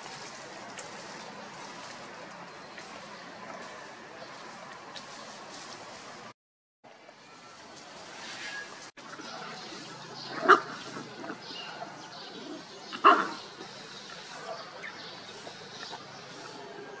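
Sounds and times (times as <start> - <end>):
puppy barking: 10.2 - 11.9, 12.9 - 13.4.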